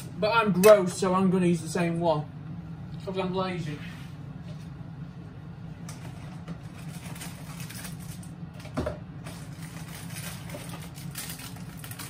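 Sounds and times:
steady low mechanical hum: 0.0 - 12.0.

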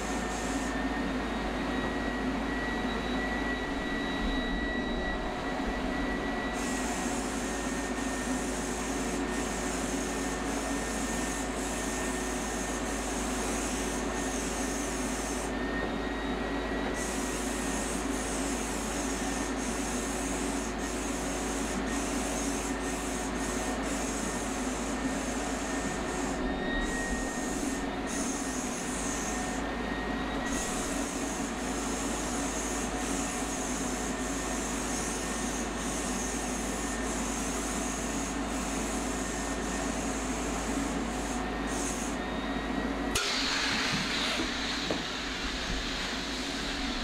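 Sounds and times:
paint sprayer turbine running: 0.0 - 47.0
spray gun hissing: 6.6 - 15.5, 17.0 - 26.4, 27.0 - 29.7, 30.5 - 42.2, 43.2 - 47.0.

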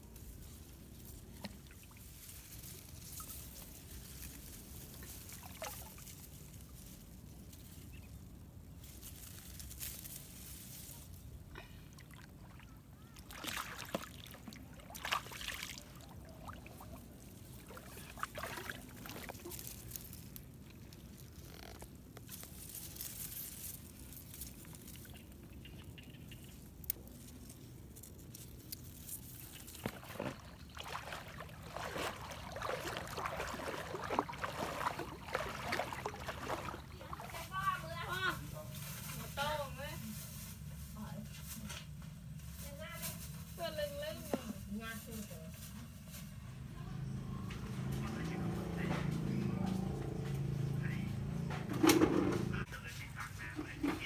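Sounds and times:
water splashing and trickling: 0.0 - 40.3
wet grass rustling: 0.0 - 46.4
person wading through water: 1.1 - 2.6, 4.1 - 6.5, 11.6 - 21.4, 29.2 - 38.3.

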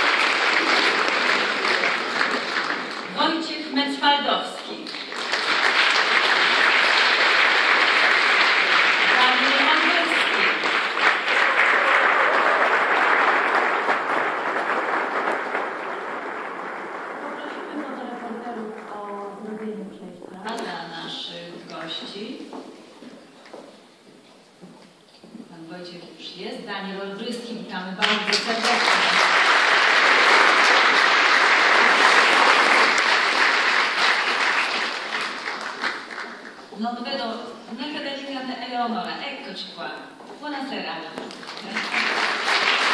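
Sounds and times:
audience applauding: 0.0 - 3.5, 4.8 - 19.9, 28.0 - 36.8, 41.3 - 42.9.

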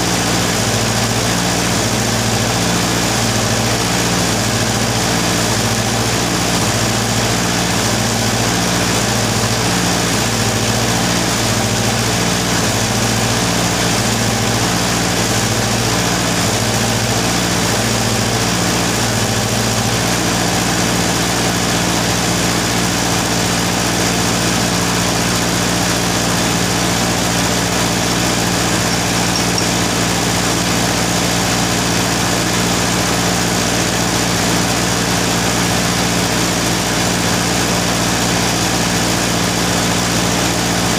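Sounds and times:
arc welder humming: 27.3 - 31.0.

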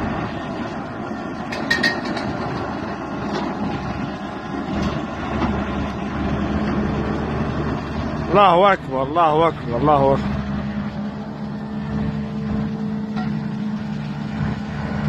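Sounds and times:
excavator diesel engine: 0.0 - 15.0
steel tracks clanking: 1.4 - 3.9
sharp metallic clanks: 1.5 - 2.7.

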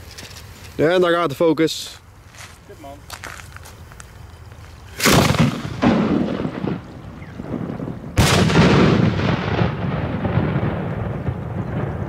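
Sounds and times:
firework bang with rolling echo: 5.0 - 12.0
mortar launch echo: 5.0 - 12.0.

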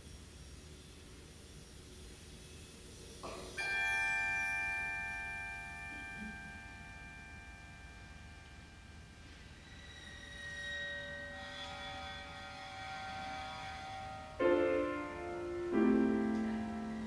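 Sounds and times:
tubular bell ringing: 3.6 - 11.7
quiet concert band music: 14.4 - 17.0.

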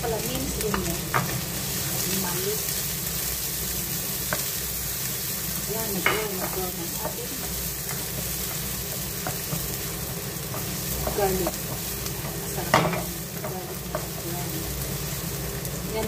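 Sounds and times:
garlic sizzling in oil: 0.0 - 16.0.

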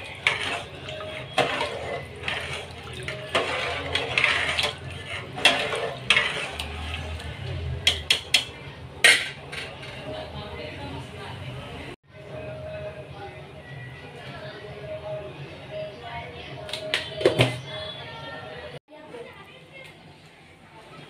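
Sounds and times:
liquid sloshing: 0.0 - 8.4
metal spoon scraping in pot: 0.0 - 10.3.

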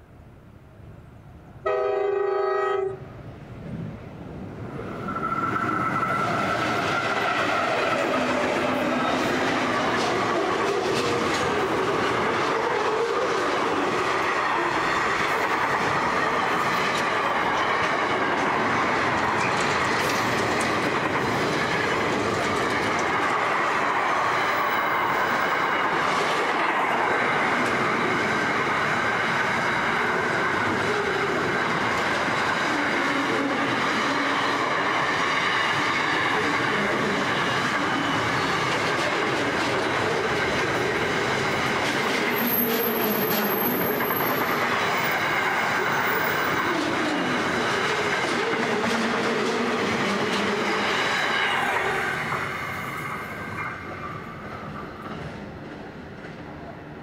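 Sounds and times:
train wheels running on rails: 3.5 - 57.0.

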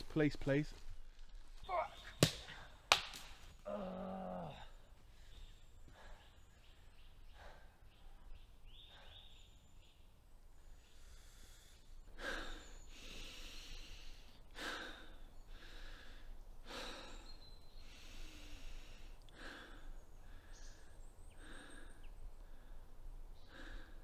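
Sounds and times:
man breathing hard: 4.4 - 9.4, 10.7 - 24.0.

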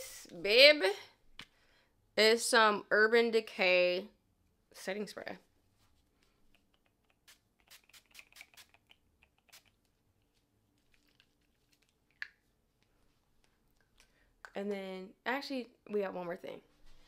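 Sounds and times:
spray bottle spritzing: 7.0 - 9.8.

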